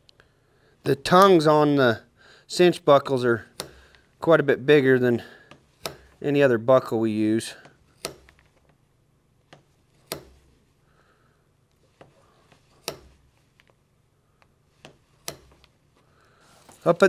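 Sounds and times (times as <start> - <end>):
leather hole punch clicks: 8.0 - 8.6, 9.5 - 10.5, 12.8 - 13.2, 15.2 - 15.7.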